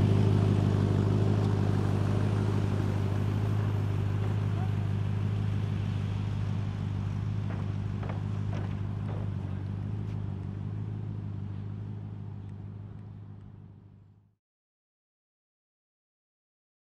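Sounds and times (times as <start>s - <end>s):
car engines idling: 0.0s - 14.3s.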